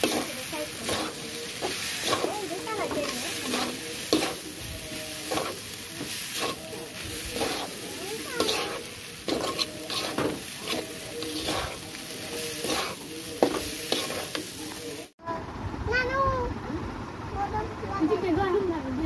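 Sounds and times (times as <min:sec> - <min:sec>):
spatula scraping metal pan: 0:00.0 - 0:14.8
frying sizzle: 0:00.0 - 0:15.2.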